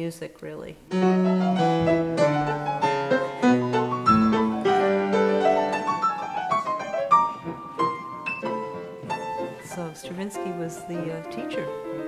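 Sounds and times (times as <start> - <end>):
grand piano playing: 0.9 - 12.0.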